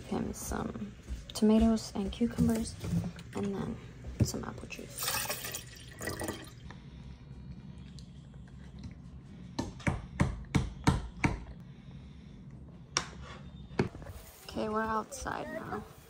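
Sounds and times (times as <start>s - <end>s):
juice pouring into metal tumbler: 5.0s - 6.6s.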